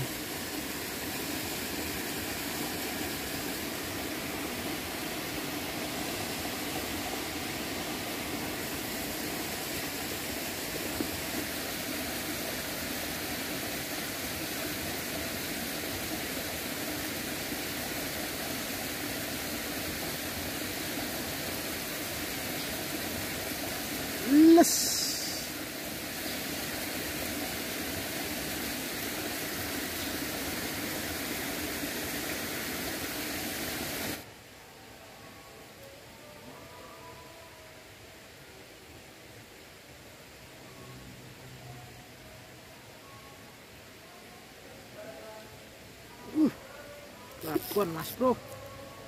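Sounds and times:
river water flowing: 0:00.0 - 0:34.6.

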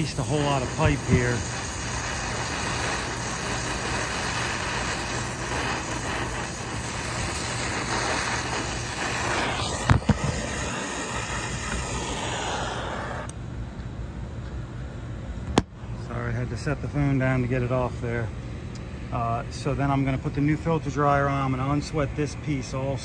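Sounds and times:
brazing torch flame: 0:00.0 - 0:13.4.

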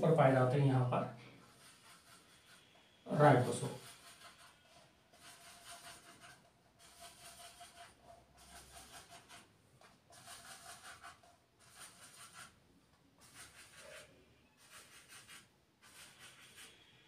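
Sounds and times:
marker pen scratching on whiteboard: 0:01.4 - 0:12.6, 0:13.2 - 0:17.0.

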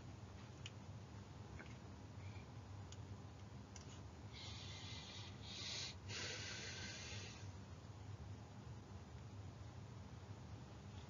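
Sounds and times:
faint low room hum: 0:00.0 - 0:11.0
person breathing: 0:04.3 - 0:07.5.

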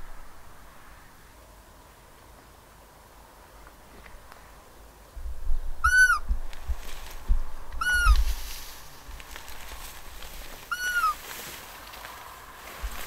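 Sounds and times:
deer call squeaks: 0:05.8 - 0:06.3, 0:07.8 - 0:08.3, 0:10.7 - 0:11.2.

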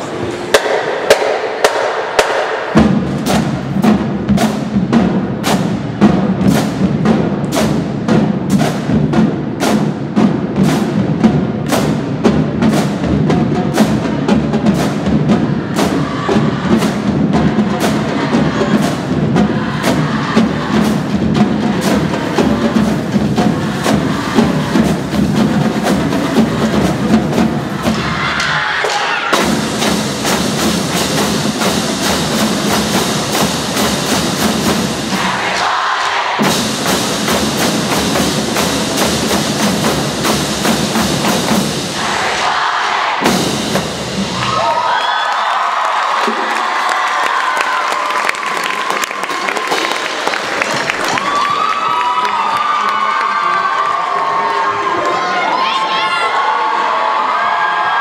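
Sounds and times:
snare drum strikes: 0:00.0 - 0:44.6
low drums: 0:00.0 - 0:45.0.

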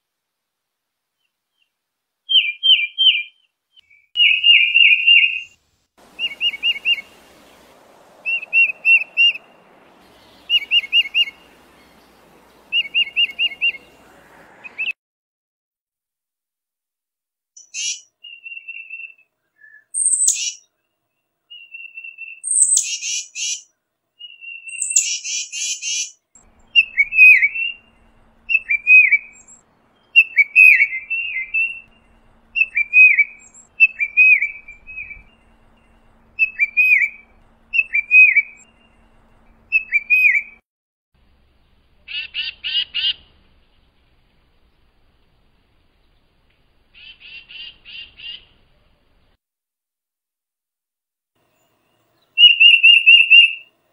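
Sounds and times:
harsh buzzy bird calls: 0:04.2 - 0:15.0, 0:17.6 - 0:20.6, 0:21.5 - 0:40.6, 0:42.0 - 0:48.7, 0:51.6 - 0:53.7
tufted titmouse calling: 0:06.1 - 0:14.0, 0:17.6 - 0:19.1, 0:19.9 - 0:20.7, 0:21.6 - 0:23.6, 0:24.2 - 0:39.0, 0:42.1 - 0:43.3, 0:46.9 - 0:48.5, 0:52.4 - 0:53.6
down-slurred whistled notes: 0:26.5 - 0:40.6, 0:52.4 - 0:53.7.

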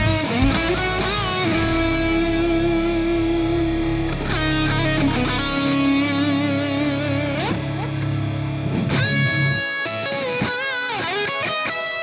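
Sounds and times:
electric guitar solo: 0:00.0 - 0:12.0.

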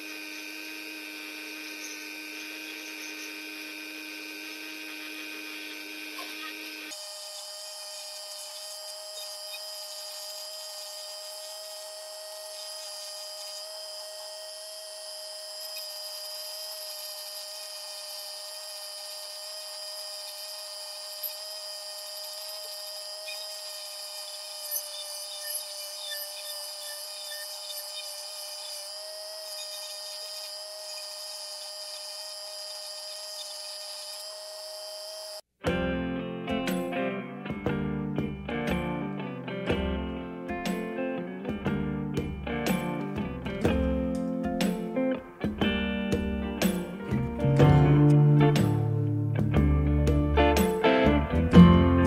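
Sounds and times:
burr rasping wood: 0:00.0 - 0:35.5
rotary tool whine: 0:00.0 - 0:35.6.

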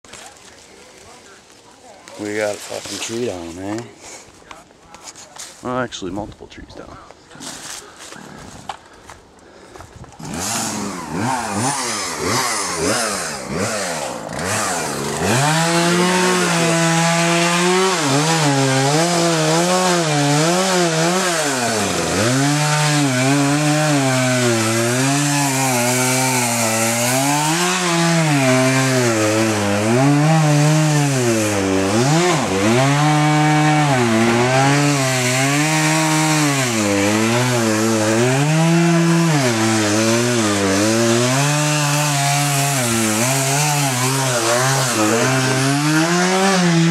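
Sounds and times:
chainsaw cutting wood: 0:10.1 - 0:46.9.

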